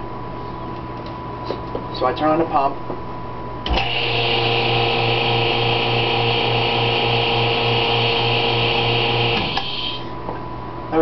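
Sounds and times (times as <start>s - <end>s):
vacuum pump humming and hissing: 3.6s - 10.5s.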